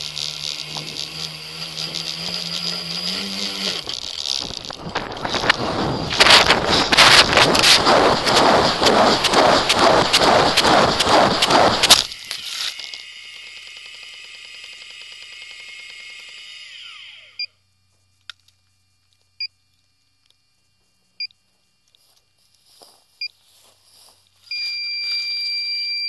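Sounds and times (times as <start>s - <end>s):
electronic whine: 0.0s - 17.6s, 24.4s - 26.0s.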